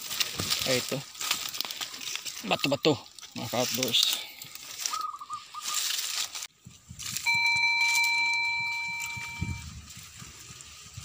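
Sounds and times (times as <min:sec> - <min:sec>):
rustling: 0:00.0 - 0:11.0
ringing chime tone: 0:07.2 - 0:09.7.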